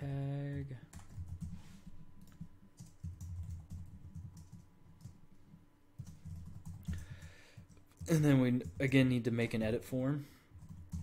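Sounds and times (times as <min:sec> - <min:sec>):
typing on computer keyboard: 0:00.9 - 0:01.6, 0:02.2 - 0:05.2, 0:06.0 - 0:09.1, 0:10.6 - 0:11.0.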